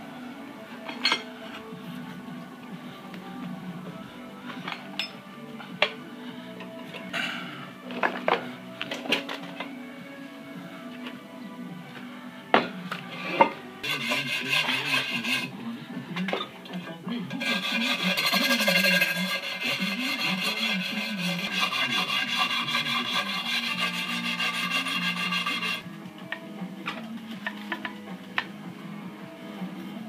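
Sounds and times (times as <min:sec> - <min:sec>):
scrubbing on aluminium wheel rim: 0:13.8 - 0:15.5, 0:17.4 - 0:25.8.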